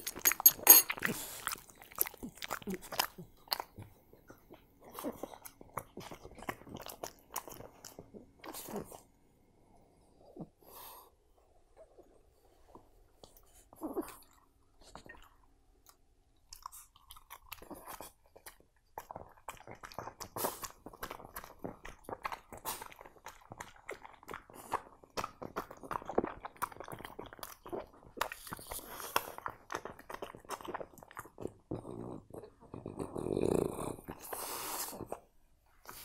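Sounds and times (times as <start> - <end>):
dog crunching food: 0.9 - 3.9.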